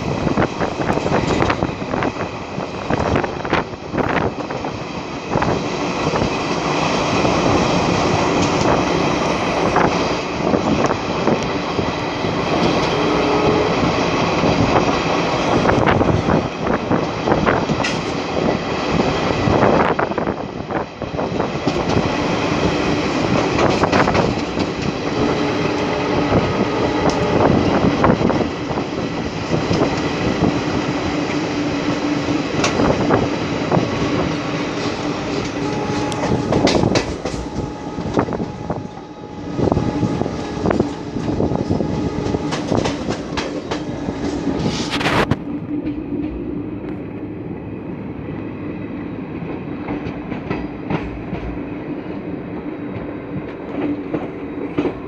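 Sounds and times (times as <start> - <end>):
train wheel and wind rush: 0.0 - 55.0
wheels clicking over rails: 32.6 - 39.1, 40.1 - 46.5.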